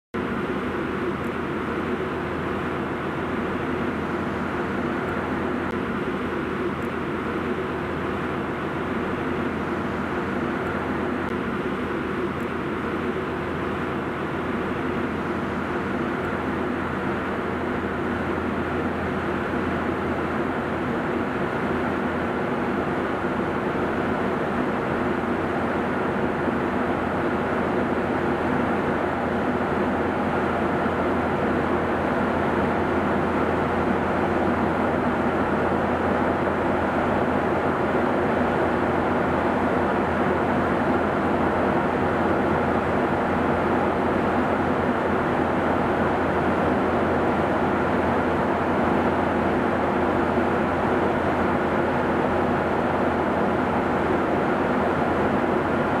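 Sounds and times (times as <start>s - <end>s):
airflow over fuselage: 0.2s - 56.0s
faint steady hum: 0.2s - 56.0s
jet engines droning: 0.2s - 56.0s.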